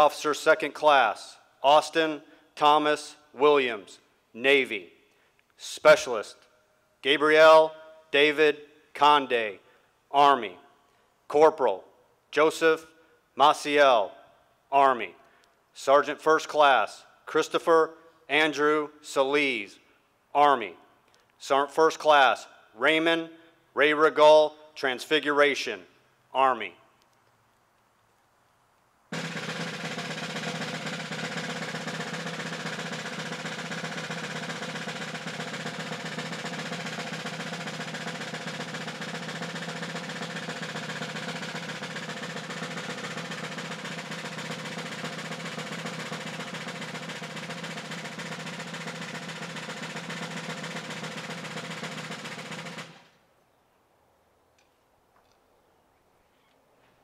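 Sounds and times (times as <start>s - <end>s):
snare drum roll: 0.0s - 4.9s, 7.1s - 9.4s, 29.1s - 53.2s.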